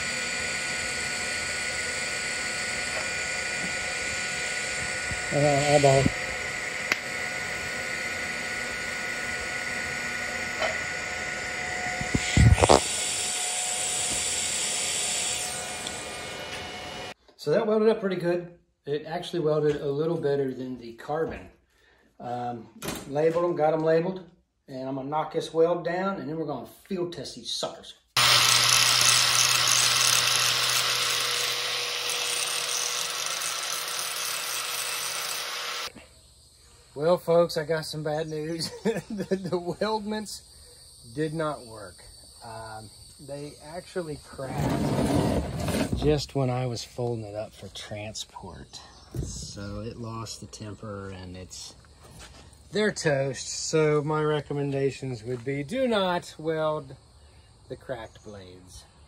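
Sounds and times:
welding arc hissing: 0.0s - 10.7s, 11.4s - 17.2s, 28.2s - 36.0s
angle grinder grinding metal: 0.0s - 17.2s, 28.2s - 36.0s.

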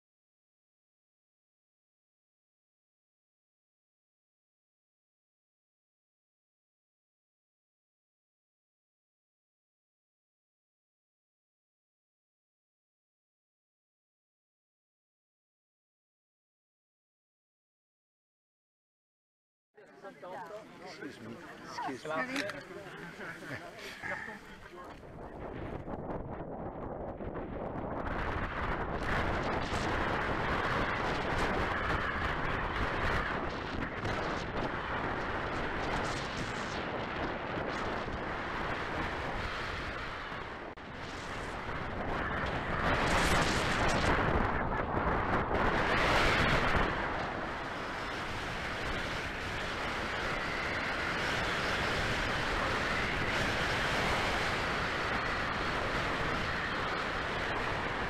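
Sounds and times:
wind buffeting on camera: 21.3s - 58.0s.

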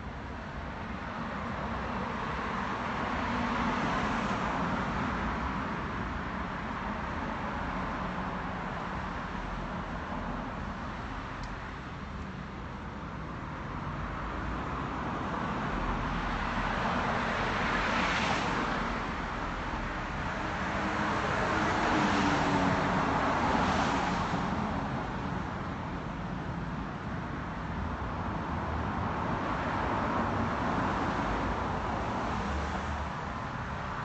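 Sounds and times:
cars passing on road: 0.0s - 34.0s.

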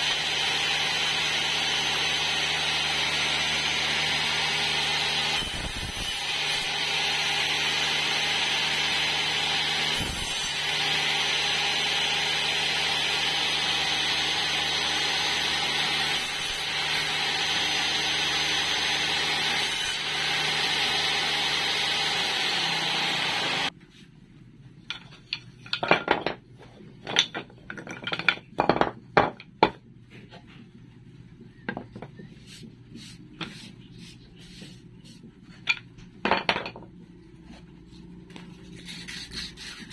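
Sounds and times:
table saw running: 0.0s - 23.7s
wooden pieces knocking and clattering: 24.8s - 29.8s, 35.6s - 37.0s.

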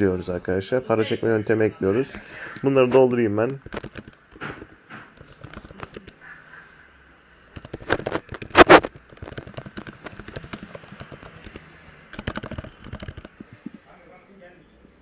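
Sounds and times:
keyboard key clicks: 3.4s - 6.1s, 7.5s - 13.8s.

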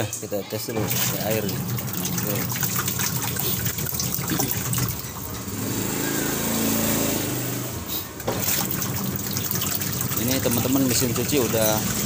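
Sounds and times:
washing machine motor humming: 0.0s - 12.0s
water running into tub: 0.7s - 12.0s.

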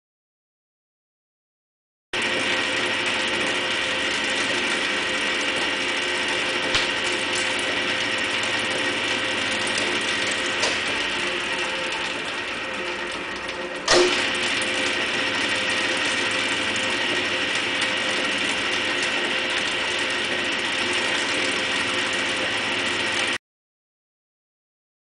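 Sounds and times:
motor whine of gears: 2.2s - 23.4s
sharp mechanical clunk: 13.8s - 14.2s.

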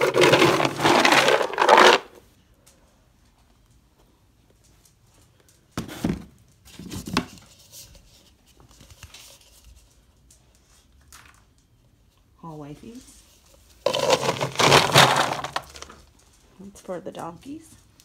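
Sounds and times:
feed pellets rattling in plastic scoop: 0.0s - 2.2s, 13.8s - 16.1s
scoops rustling: 0.0s - 2.2s, 13.4s - 16.4s.

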